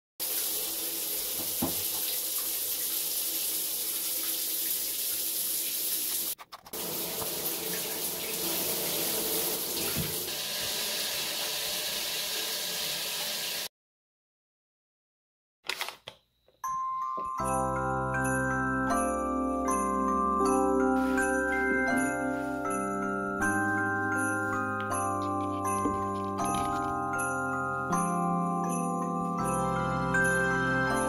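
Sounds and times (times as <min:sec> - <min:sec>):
shower water spraying: 0:00.2 - 0:13.7, 0:21.0 - 0:22.7.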